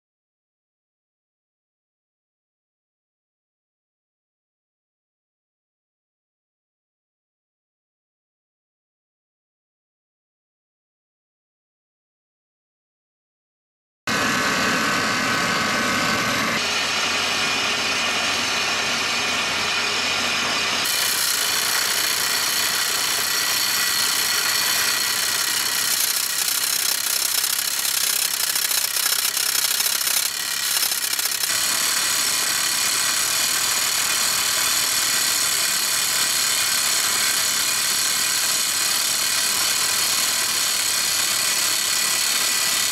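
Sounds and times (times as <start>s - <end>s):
engine running: 14.1s - 41.1s
rock drill percussive hammering: 20.8s - 42.9s.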